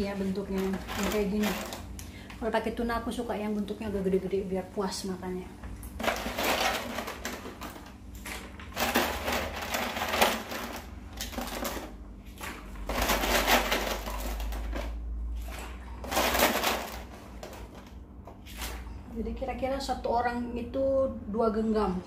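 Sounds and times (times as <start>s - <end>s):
plastic bag crinkling: 0.0s - 2.0s, 5.9s - 18.9s
dry pasta rattling: 0.1s - 2.0s, 6.0s - 15.2s, 16.0s - 17.9s.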